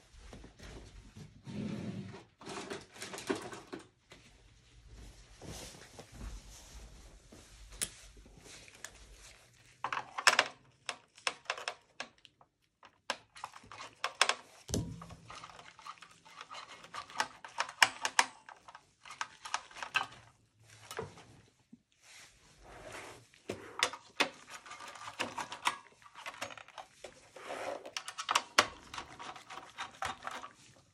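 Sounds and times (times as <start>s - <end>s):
screwdriver clicks and scrapes: 13.1s - 20.1s, 23.8s - 30.5s.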